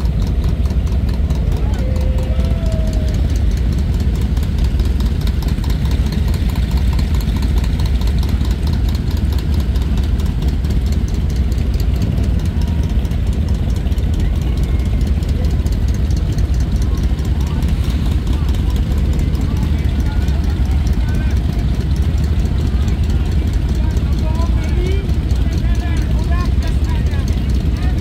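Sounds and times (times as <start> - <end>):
motorcycles idling: 0.0 - 28.0.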